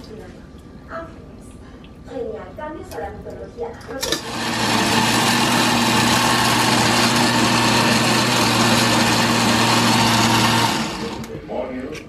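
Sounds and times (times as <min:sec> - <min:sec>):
electric blender running: 0:04.0 - 0:11.3.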